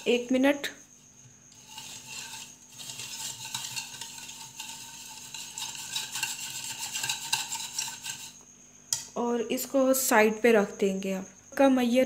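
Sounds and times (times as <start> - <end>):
wire whisk scraping ceramic bowl: 1.5 - 8.4.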